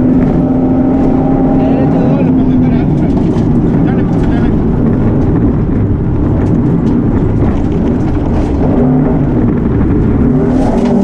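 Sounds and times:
car engine running hard: 0:00.0 - 0:11.0.

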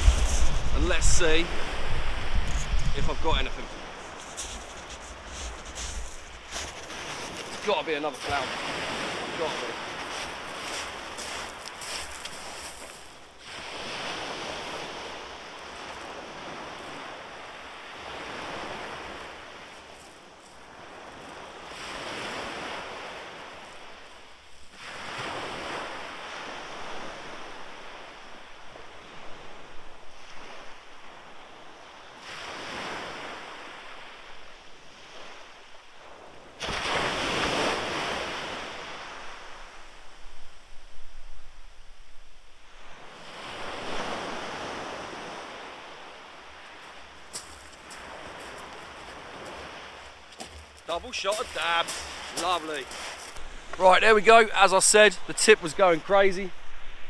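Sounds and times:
wind on microphone: 0:00.0 - 0:07.6
surf breaking on beach: 0:00.0 - 0:20.0, 0:20.7 - 0:24.1, 0:24.8 - 0:31.3, 0:34.9 - 0:40.2, 0:42.8 - 0:57.0.

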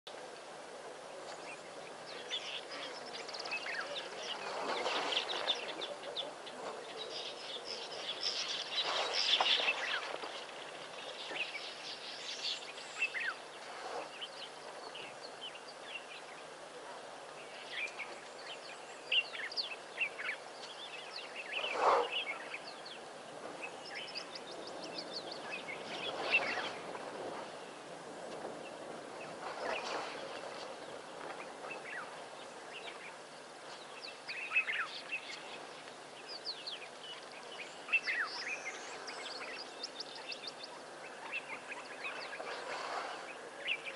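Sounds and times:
steady background hiss: 0:00.1 - 0:43.9.

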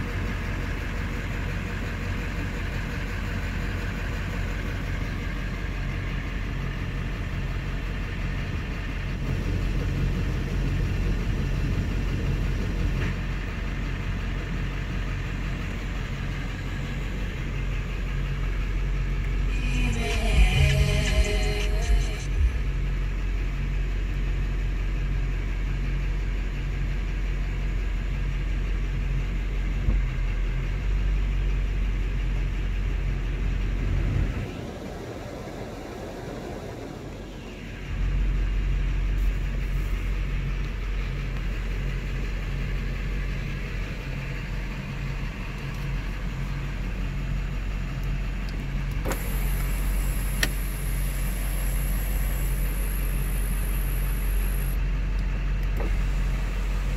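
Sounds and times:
diesel truck engine idling: 0:00.0 - 0:56.9
rushing sound: 0:19.5 - 0:22.9.

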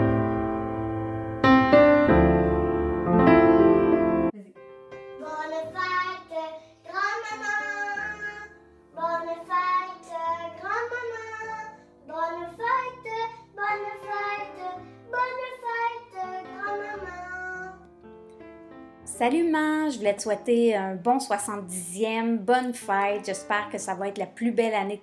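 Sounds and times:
soft background music: 0:02.1 - 0:25.0
boy singing: 0:05.2 - 0:17.8.

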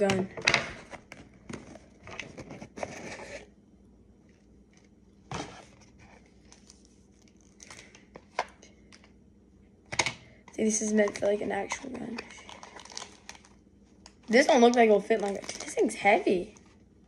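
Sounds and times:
packaging tearing and crinkling: 0:12.2 - 0:13.6.

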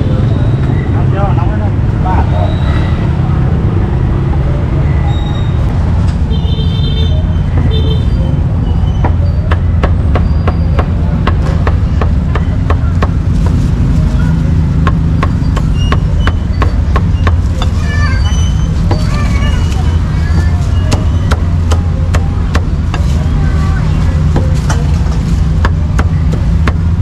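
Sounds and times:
cleaver chopping on wooden block: 0:09.0 - 0:13.6, 0:14.8 - 0:17.5, 0:25.6 - 0:27.0.

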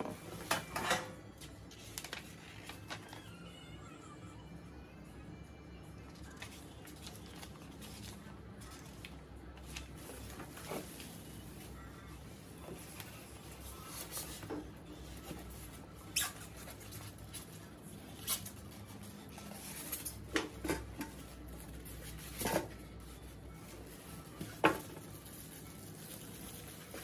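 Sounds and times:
plastic wrap crinkling: 0:01.5 - 0:03.4, 0:06.2 - 0:27.0
styrofoam squeaking: 0:15.5 - 0:17.3.

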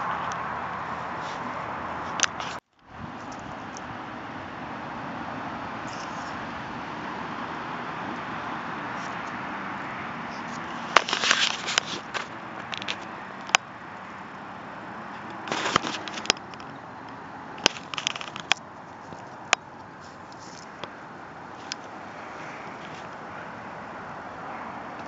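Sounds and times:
crackling handling rubs: 0:00.0 - 0:03.9, 0:05.8 - 0:06.6, 0:08.0 - 0:14.4, 0:15.0 - 0:23.4.

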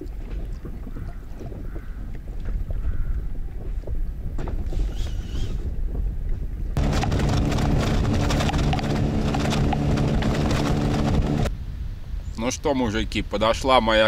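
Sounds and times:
water noise: 0:00.0 - 0:11.5
wind on microphone: 0:00.0 - 0:14.0
outboard motor running: 0:06.8 - 0:11.5.

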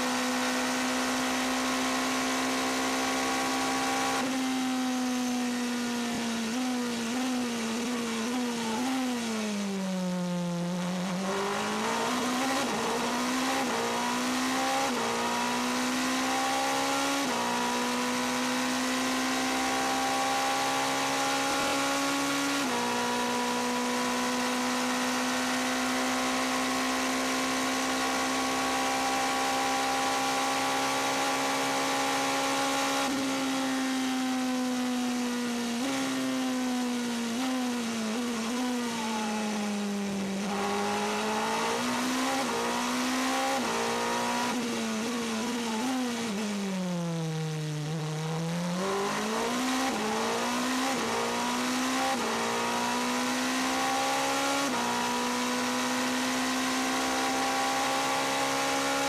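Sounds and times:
race car engine revving: 0:00.0 - 0:04.5, 0:10.4 - 0:46.6, 0:47.4 - 0:59.0.

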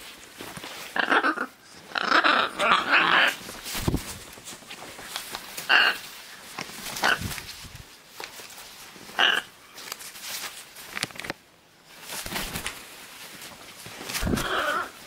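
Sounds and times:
macaw harsh raspy calls: 0:00.9 - 0:03.4, 0:05.6 - 0:06.0, 0:07.0 - 0:07.2, 0:09.1 - 0:09.6, 0:14.2 - 0:15.0.

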